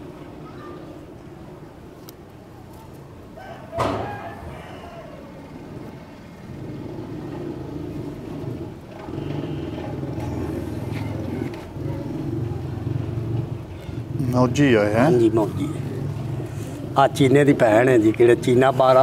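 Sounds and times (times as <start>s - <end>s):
vehicle engine rumbling: 0.0s - 19.0s
sharp knock: 3.8s - 4.2s.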